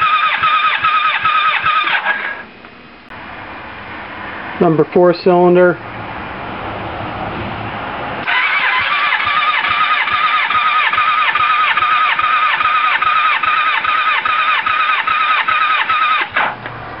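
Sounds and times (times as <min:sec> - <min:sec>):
starter motor cranking engine: 0:00.0 - 0:02.4, 0:08.2 - 0:16.7.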